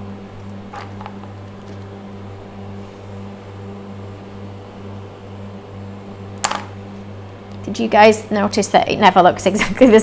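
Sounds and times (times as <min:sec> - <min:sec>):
refrigerator humming: 0:00.0 - 0:10.0.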